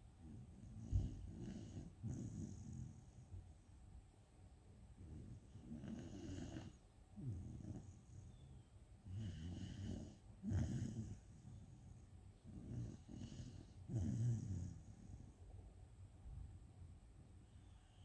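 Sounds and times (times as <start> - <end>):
dog snoring: 0.2 - 3.3, 5.0 - 15.4.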